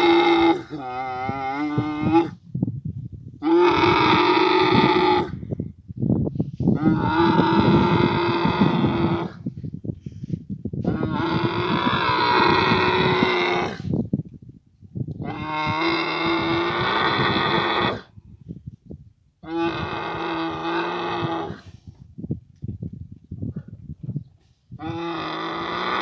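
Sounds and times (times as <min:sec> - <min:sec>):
camel harsh calls: 0:03.4 - 0:05.4, 0:06.7 - 0:09.4, 0:10.8 - 0:13.9, 0:19.4 - 0:21.8, 0:24.8 - 0:26.0.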